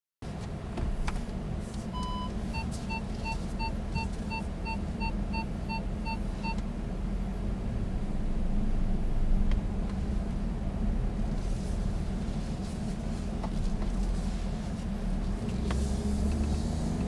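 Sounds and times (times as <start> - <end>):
diesel engine rumbling: 0.2 - 17.0
short beeps: 2.0 - 6.6.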